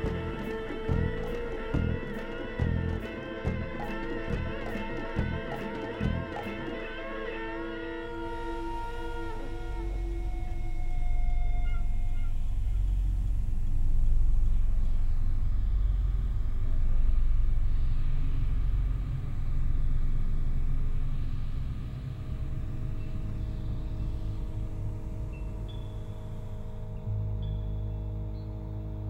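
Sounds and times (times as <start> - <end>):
deep rumble: 0.0 - 6.4.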